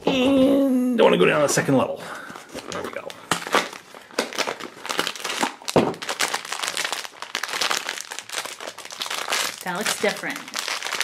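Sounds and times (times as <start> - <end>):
foil bag crinkling: 2.3 - 11.0.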